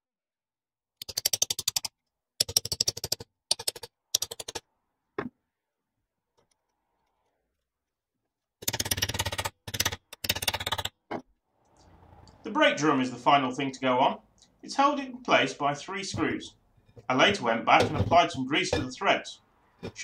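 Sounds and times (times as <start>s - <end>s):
rapid mechanical clicking: 1.0s - 4.7s, 8.6s - 11.0s.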